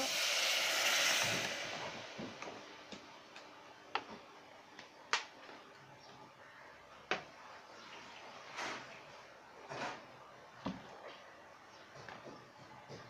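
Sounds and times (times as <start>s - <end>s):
liquid sizzling in hot pot: 0.0s - 2.8s.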